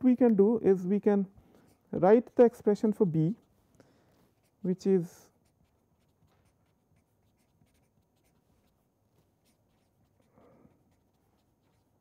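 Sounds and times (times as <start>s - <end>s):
marker scratching on paper: 4.3s - 12.0s.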